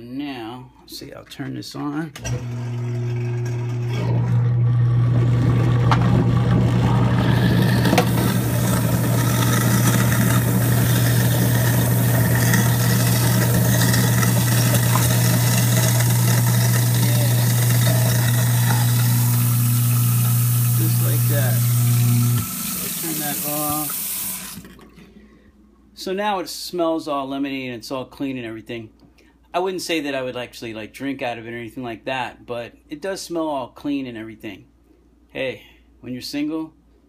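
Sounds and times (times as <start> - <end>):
garbage disposal motor humming: 2.2 - 25.3.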